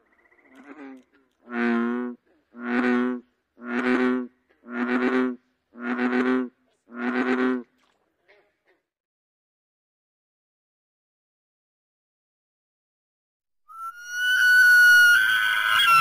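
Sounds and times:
bullfrog calling: 0.0s - 7.7s.

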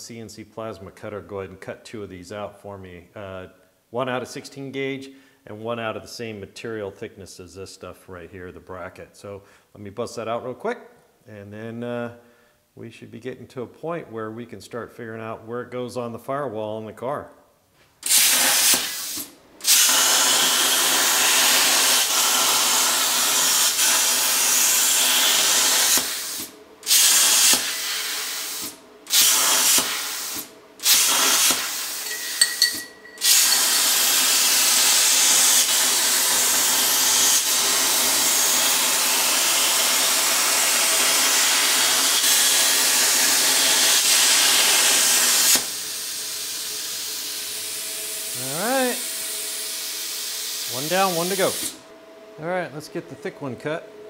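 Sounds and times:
plasma torch hissing: 18.0s - 32.1s, 33.2s - 51.8s.

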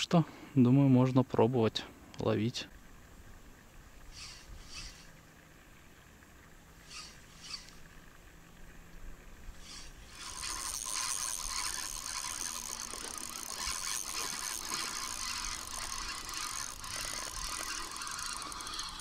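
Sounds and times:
fishing reel gears whirring: 3.9s - 5.4s, 6.8s - 8.2s, 9.5s - 19.0s.

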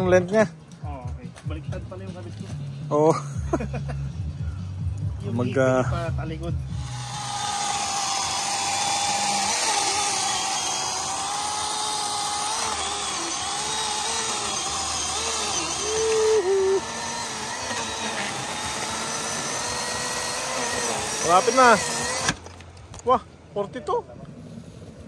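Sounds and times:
chainsaw cutting wood: 6.7s - 22.8s.

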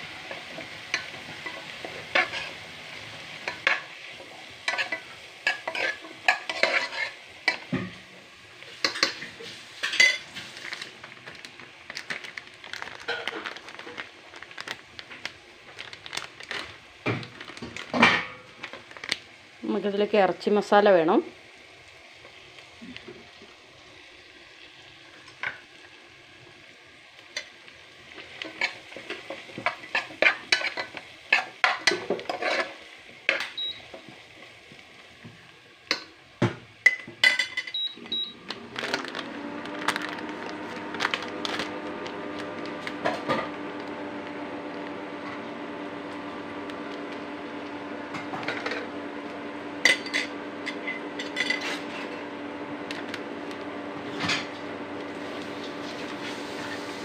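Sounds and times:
light sizzling: 0.0s - 57.0s
spoon stirring in metal pot: 0.9s - 2.6s, 4.6s - 7.7s, 28.4s - 33.5s.

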